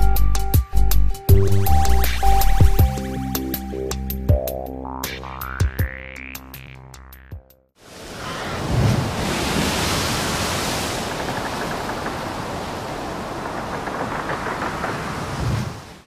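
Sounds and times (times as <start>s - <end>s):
wind and sea rushing: 7.8s - 16.0s
wind buffeting microphone: 8.6s - 16.0s.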